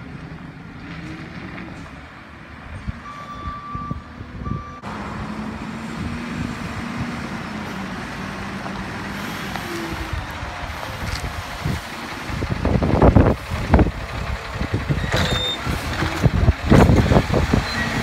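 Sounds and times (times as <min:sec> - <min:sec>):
diesel garbage truck running: 0:00.0 - 0:18.0
backup alarm beeping: 0:03.0 - 0:04.9.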